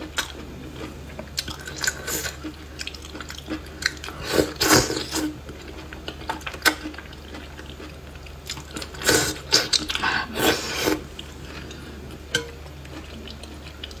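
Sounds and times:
chewing: 0.0s - 14.0s
food slurped from chopsticks: 8.9s - 11.1s.

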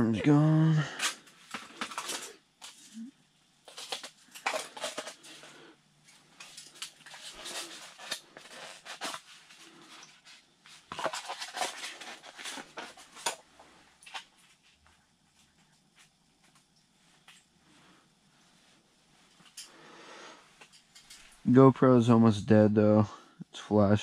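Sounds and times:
plastic container rustling and clicking: 10.9s - 13.4s.

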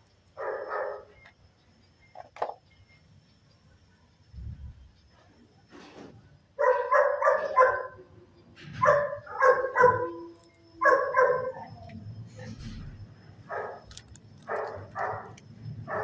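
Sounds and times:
dog barking: 0.4s - 1.1s, 6.6s - 8.1s, 8.8s - 11.8s, 13.5s - 13.9s, 14.5s - 16.0s.

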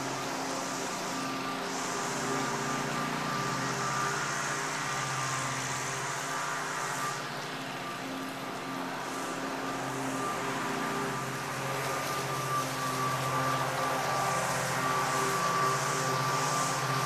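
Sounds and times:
pressure washer engine running: 0.0s - 17.0s
water spray hissing on roof tiles: 0.0s - 17.0s.

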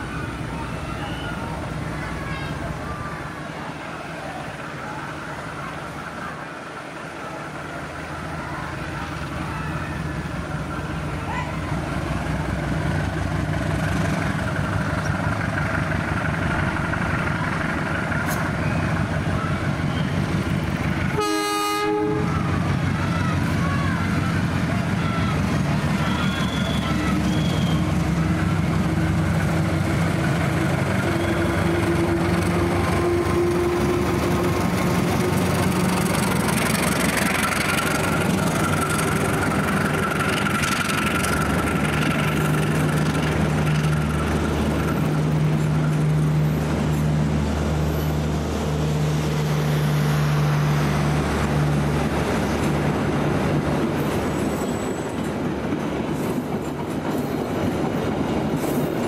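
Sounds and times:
locomotive engine humming: 0.0s - 59.0s
train wheels clattering on rails: 24.1s - 47.2s, 50.8s - 59.0s.

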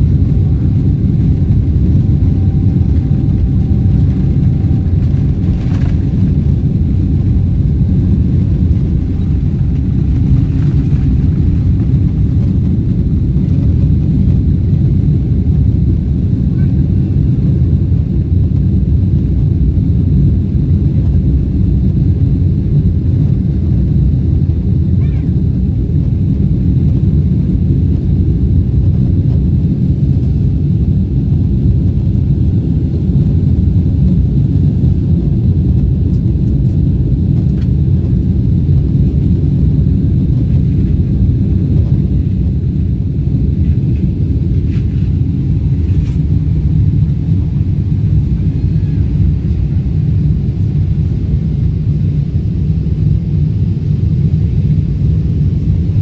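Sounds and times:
jet engines rumbling in cabin: 0.0s - 56.0s.

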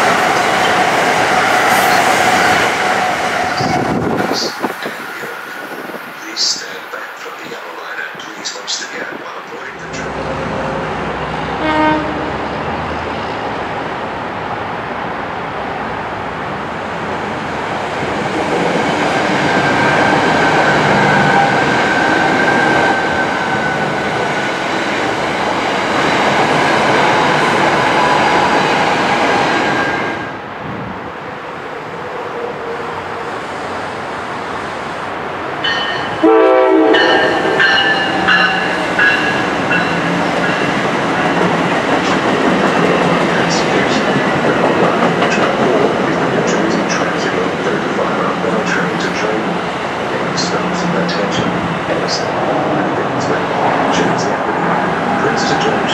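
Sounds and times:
train wheels rushing on rails: 0.0s - 55.9s
train horn: 11.6s - 12.5s, 36.2s - 39.4s.

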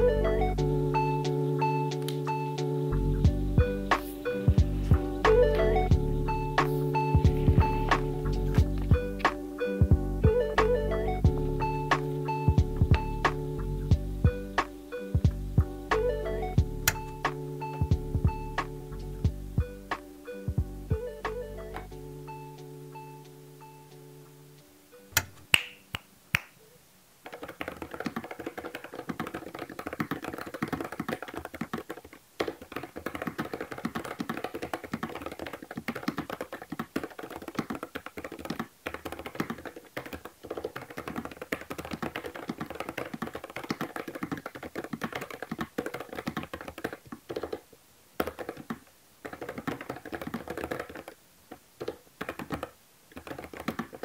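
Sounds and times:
keyboard typing clacks: 27.3s - 47.6s, 48.2s - 51.2s, 51.8s - 54.0s.

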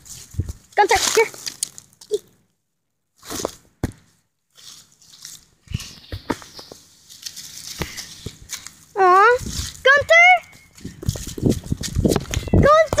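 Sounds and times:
rustling in dry leaves and grass: 0.0s - 2.3s, 4.5s - 13.0s.

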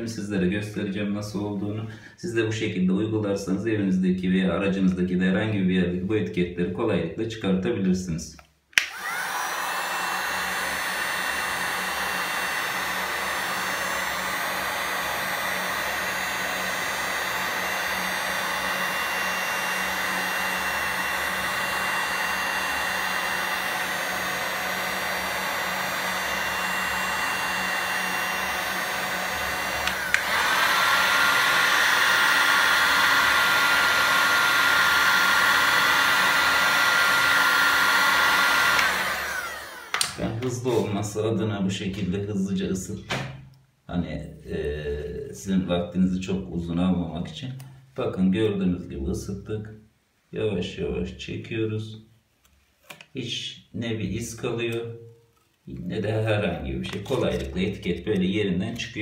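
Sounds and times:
heat gun switch click: 8.7s - 9.1s, 29.8s - 30.4s, 39.9s - 40.2s
heat gun blowing with fan whine: 8.8s - 40.9s.

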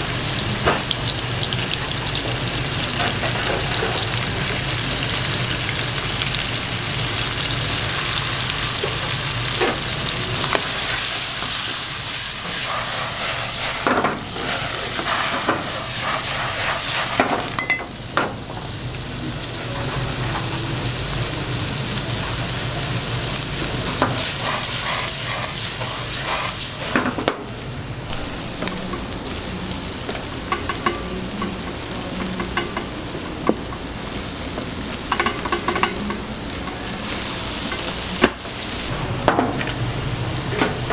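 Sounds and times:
vegetables sizzling in a frying pan: 0.0s - 40.9s
utensil scraping a pan: 12.4s - 17.4s, 24.0s - 27.1s.

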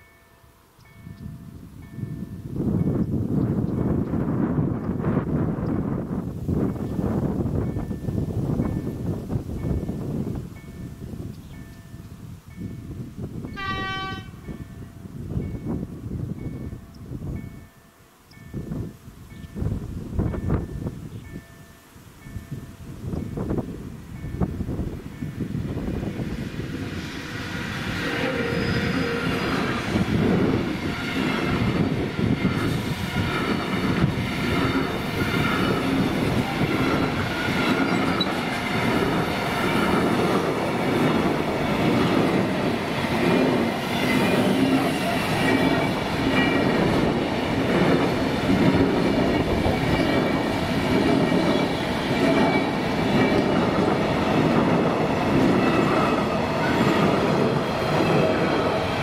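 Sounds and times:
train wheels clattering over rails: 26.0s - 59.0s
high-pitched wheel squeal: 27.1s - 30.0s.

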